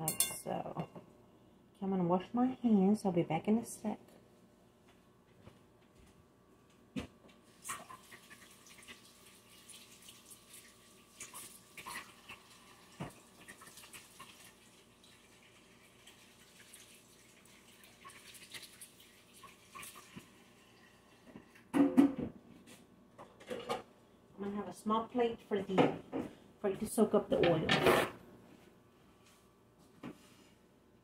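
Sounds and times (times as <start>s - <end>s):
tap water running: 7.5s - 21.6s.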